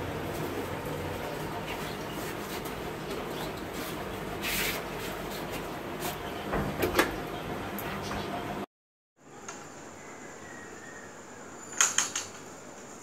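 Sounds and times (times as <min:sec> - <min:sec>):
door clicking and knocking shut: 0:06.5 - 0:07.2.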